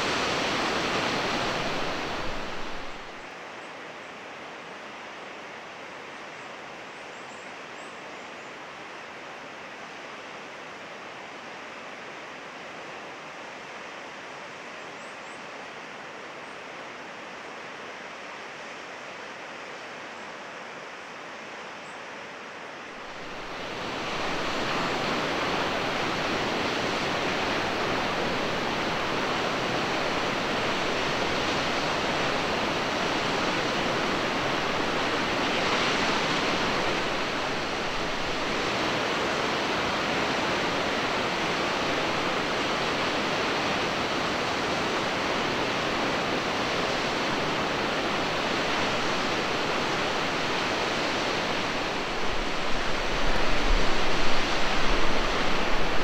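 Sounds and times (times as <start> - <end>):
waterfall rushing: 0.0 - 3.3, 22.9 - 56.0.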